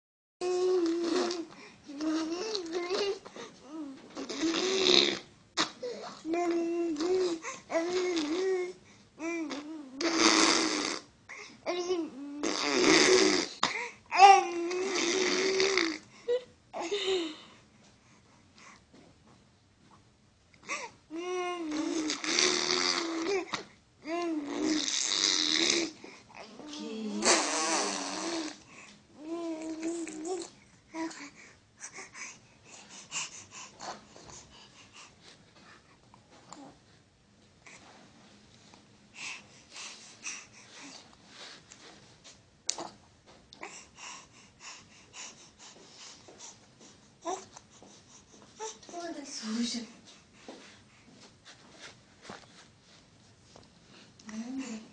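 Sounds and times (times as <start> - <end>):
baby cooing: 0.4 - 11.1, 11.7 - 16.1, 21.1 - 28.6, 29.2 - 31.2
baby blowing raspberries: 0.6 - 1.5, 4.2 - 5.9, 7.0 - 8.6, 9.4 - 11.1, 12.4 - 13.7, 14.5 - 16.1, 21.6 - 23.6, 24.4 - 26.1, 27.2 - 28.6.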